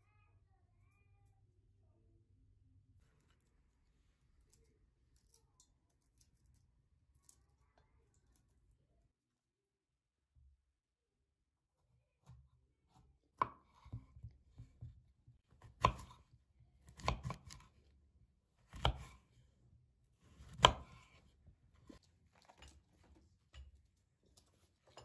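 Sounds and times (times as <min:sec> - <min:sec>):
knife cutting through fruit: 0:15.6 - 0:16.2, 0:16.8 - 0:17.8, 0:18.6 - 0:19.3, 0:20.2 - 0:23.1.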